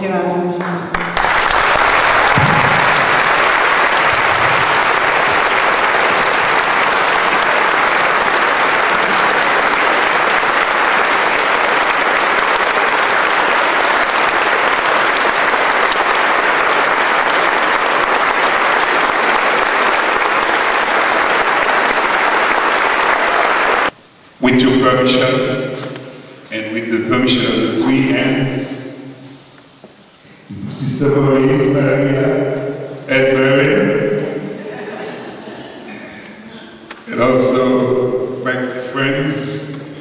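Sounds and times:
audience applauding: 0.6s - 24.0s.

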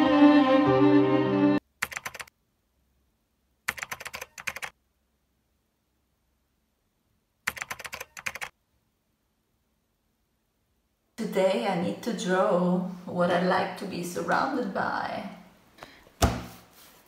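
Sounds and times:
string music: 0.0s - 1.6s
keyboard typing clicks: 1.8s - 2.3s, 3.7s - 4.7s, 7.5s - 8.5s.

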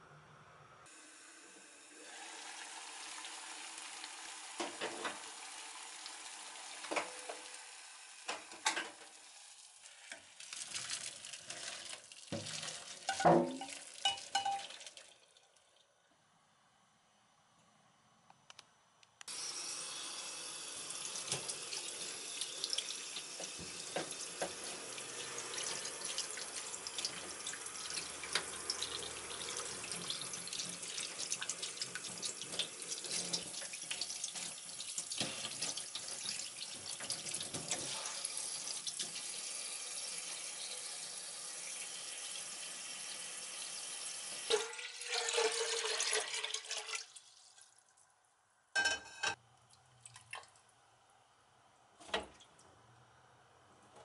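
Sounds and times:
tap water splashing in sink: 6.8s - 7.6s, 10.1s - 15.1s, 21.2s - 38.1s
water pouring into steel pot: 9.5s - 15.4s, 44.5s - 47.9s.

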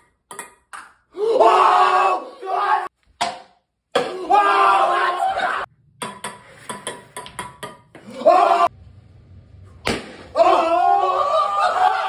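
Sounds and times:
young men shouting: 1.2s - 2.9s, 4.0s - 5.7s, 8.0s - 8.7s, 10.3s - 12.0s
sharp smack: 9.8s - 10.3s.

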